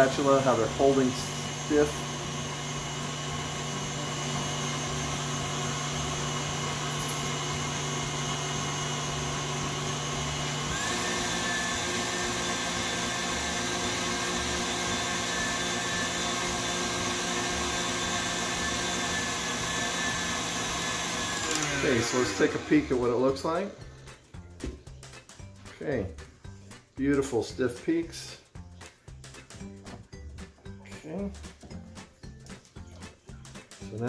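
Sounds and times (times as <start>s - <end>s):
electric stand mixer whisking: 0.0s - 24.0s.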